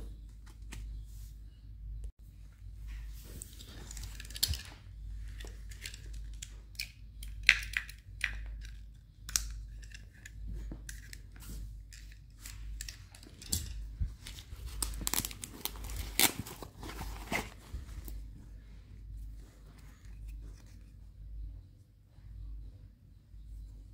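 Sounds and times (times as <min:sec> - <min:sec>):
fabric bag rustling and scraping: 0:14.1 - 0:18.4.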